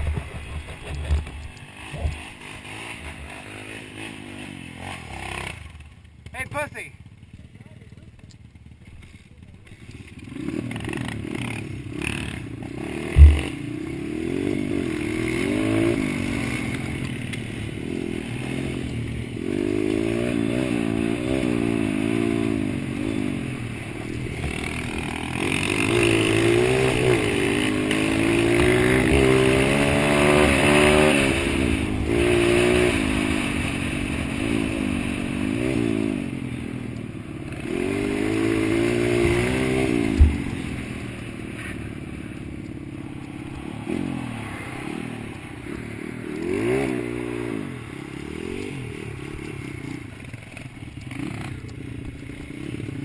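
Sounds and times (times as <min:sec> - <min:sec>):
dirt bike engine revving: 0:00.0 - 0:07.4, 0:08.6 - 0:53.0
sharp thump: 0:13.1 - 0:13.6, 0:39.2 - 0:40.6.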